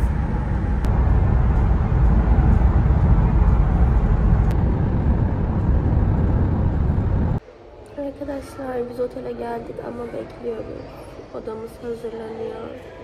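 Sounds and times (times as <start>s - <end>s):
road noise inside van: 0.0s - 7.4s.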